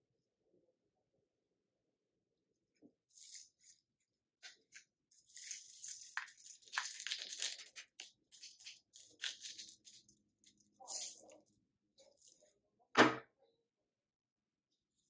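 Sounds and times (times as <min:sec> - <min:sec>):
sprinkles rattling in shaker: 0:03.1 - 0:03.8, 0:05.1 - 0:12.5
foil packet crinkling: 0:04.4 - 0:11.5.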